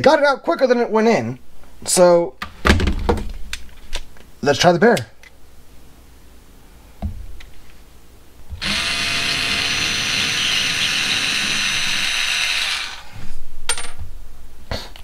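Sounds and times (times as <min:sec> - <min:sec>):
cordless screwdriver motor running: 0:08.6 - 0:13.1.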